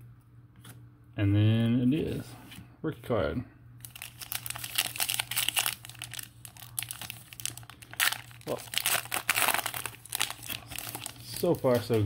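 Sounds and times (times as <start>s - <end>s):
wrapper crinkling and tearing: 3.8s - 12.0s.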